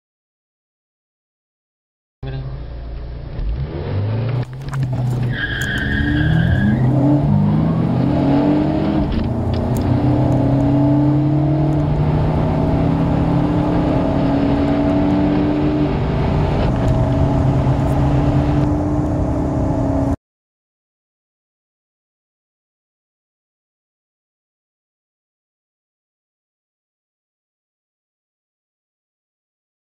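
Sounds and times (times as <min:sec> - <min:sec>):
car engine accelerating: 0:02.2 - 0:20.2
high-pitched squeal: 0:04.5 - 0:09.4.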